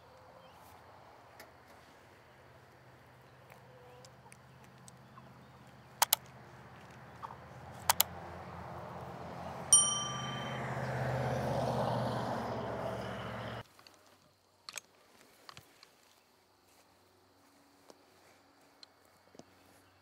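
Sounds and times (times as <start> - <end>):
sharp clicks: 5.6 - 7.0, 7.8 - 8.1
bell-like notification ding: 9.7 - 10.9.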